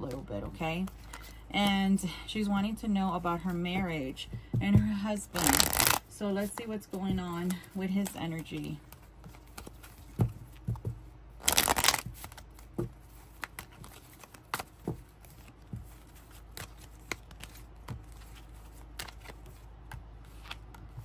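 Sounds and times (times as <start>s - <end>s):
cards flicking and tapping: 5.4s - 6.0s, 8.6s - 12.7s, 13.4s - 21.0s
cards riffle shuffling: 5.4s - 6.0s, 11.4s - 21.0s.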